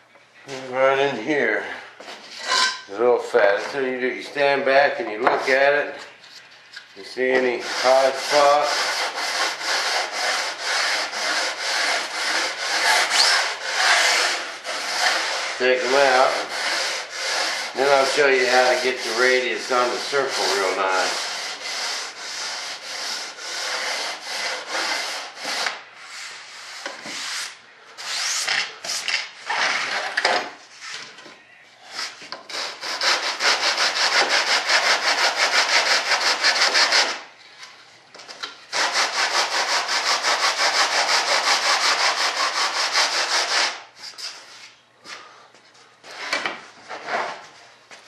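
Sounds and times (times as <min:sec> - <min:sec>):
sanding block rasping on wood: 0:07.4 - 0:25.7, 0:32.5 - 0:37.2, 0:38.7 - 0:43.8.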